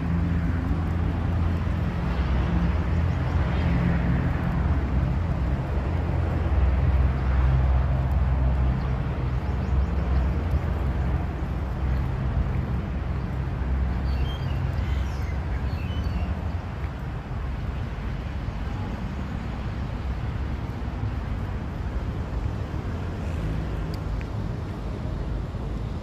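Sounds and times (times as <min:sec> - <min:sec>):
vehicle engine rumble: 0:00.0 - 0:26.0
bird chirps: 0:14.0 - 0:16.3.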